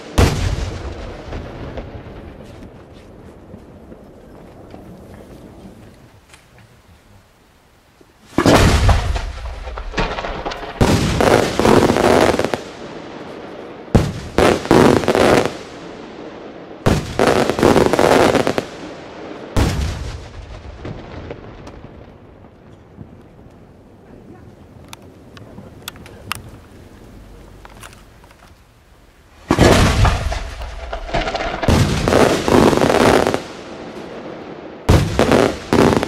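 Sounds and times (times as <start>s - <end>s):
fireworks bangs with echo: 0.0s - 5.3s, 8.3s - 23.3s, 29.3s - 36.0s.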